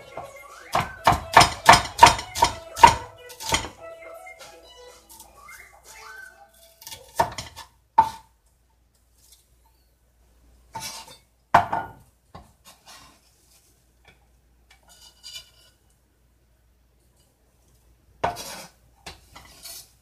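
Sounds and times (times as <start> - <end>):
knife knocking on cutting board: 0.8 - 3.7.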